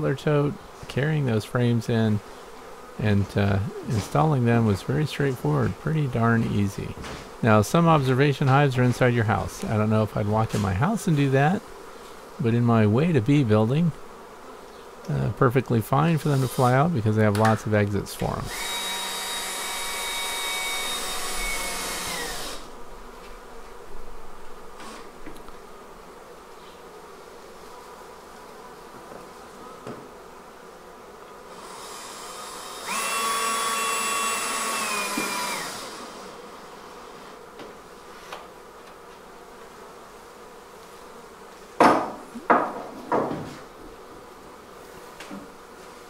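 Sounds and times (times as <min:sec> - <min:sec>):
honey bees humming: 0:00.0 - 0:46.0
cordless drill running: 0:18.5 - 0:22.6, 0:31.6 - 0:36.2
sharp knocks: 0:41.8 - 0:43.6.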